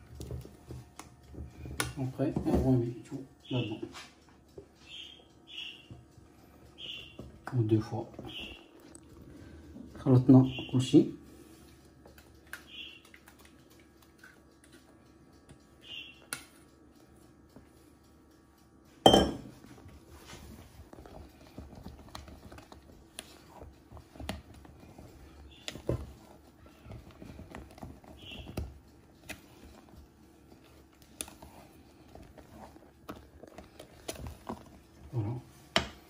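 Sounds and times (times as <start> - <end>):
knock on metal bowl: 19.1 - 19.5.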